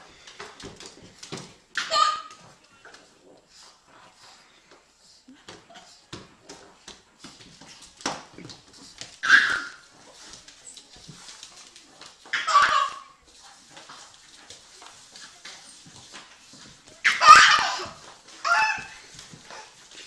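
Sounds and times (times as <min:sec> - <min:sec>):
scrabbling on hard floor: 0:05.6 - 0:20.0.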